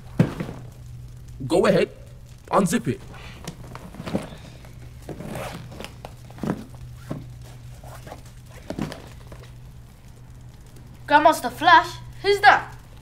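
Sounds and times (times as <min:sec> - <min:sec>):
suitcase zipper opening: 0:05.1 - 0:06.6
knocks of suitcase handling: 0:05.1 - 0:07.3.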